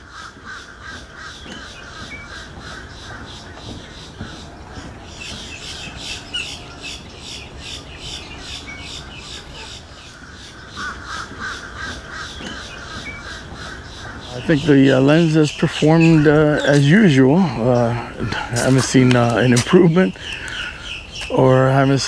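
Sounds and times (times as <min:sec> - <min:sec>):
wild birds chattering: 0:00.0 - 0:22.0.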